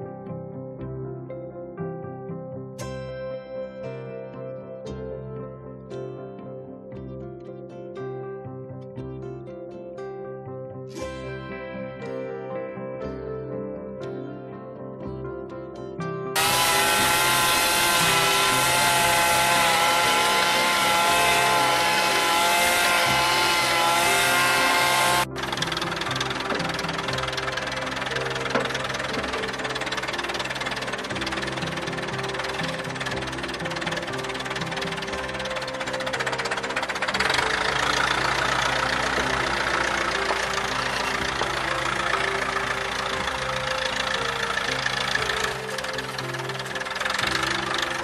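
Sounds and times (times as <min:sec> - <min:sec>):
background music: 0:00.0 - 0:48.0
small engine buzzing at high revs: 0:16.4 - 0:48.0.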